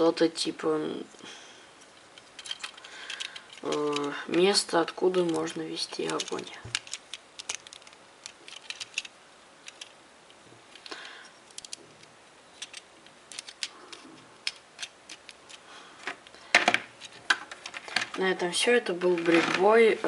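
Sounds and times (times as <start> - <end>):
plastic bricks clicking and rattling: 2.1 - 10.0, 10.7 - 18.2, 19.1 - 19.8.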